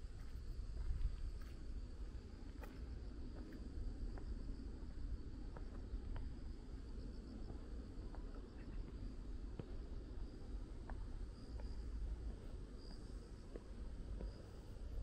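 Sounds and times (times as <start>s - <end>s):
crickets chirping: 0.0s - 15.0s
faint ticks: 10.8s - 15.0s.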